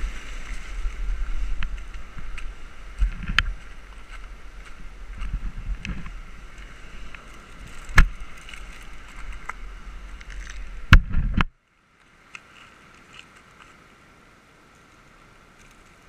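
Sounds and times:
wind buffeting microphone: 0.0 - 11.6
surf on rocks: 0.0 - 16.0.

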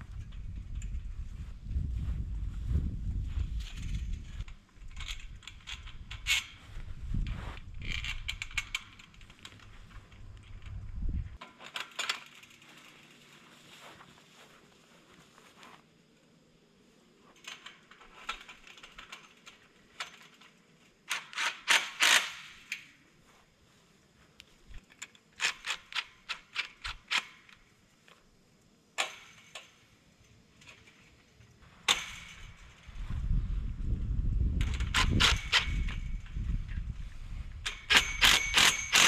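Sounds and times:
metal pipe and fencing rattling: 11.4 - 13.3, 31.8 - 33.0, 34.6 - 36.5, 37.6 - 39.0.

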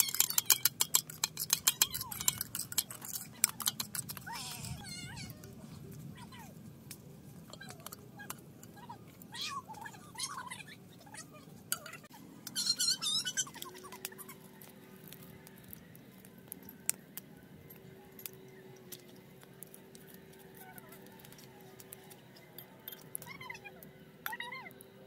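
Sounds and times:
animal squeaky calls: 0.0 - 0.8, 7.5 - 14.5, 23.2 - 24.8
fast high chirping: 11.7 - 14.5.

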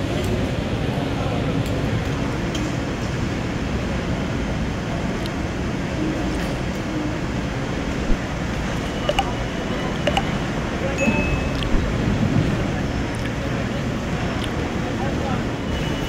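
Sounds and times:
busy hall background noise: 0.0 - 16.0
faint indistinct voices: 4.0 - 16.0
sharp clicks: 9.1 - 9.3, 10.1 - 10.3.

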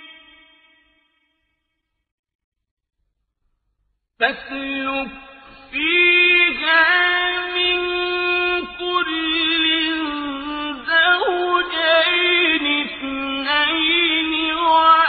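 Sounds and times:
person chanting melodic recitation: 4.2 - 15.0.

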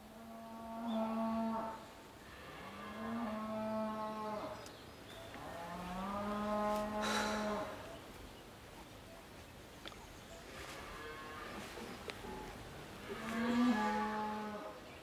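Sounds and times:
cattle mooing: 12.2 - 14.7.

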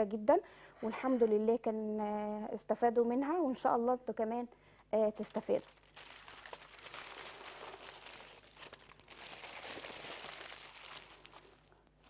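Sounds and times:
aluminium foil crinkling: 5.1 - 12.0.

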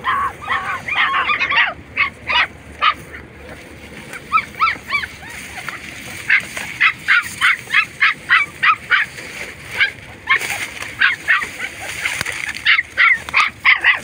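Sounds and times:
puppy yelping: 0.0 - 14.0.

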